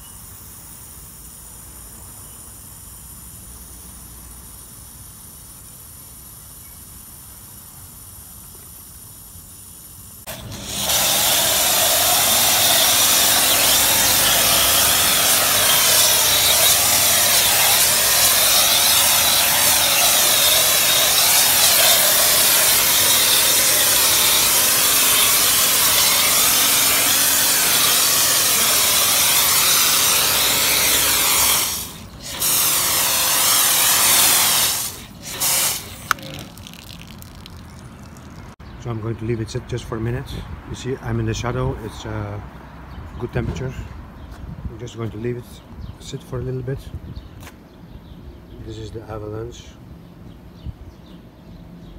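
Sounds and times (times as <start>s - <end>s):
pressure washer spray hissing: 2.5s - 38.5s
pressure washer pump running: 10.3s - 38.6s.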